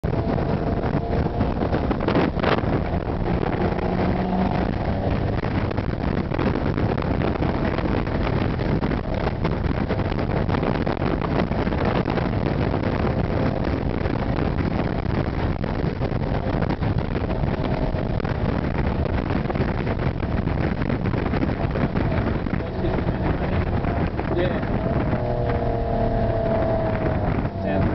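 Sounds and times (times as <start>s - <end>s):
car exhaust while driving: 0.0s - 27.9s
wind and road noise: 0.0s - 27.9s.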